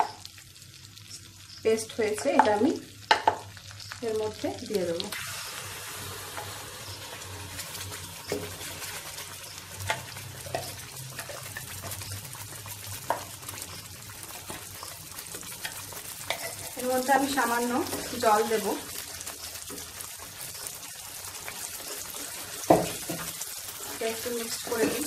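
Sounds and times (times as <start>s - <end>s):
butter sizzling in pan: 0.0s - 25.0s.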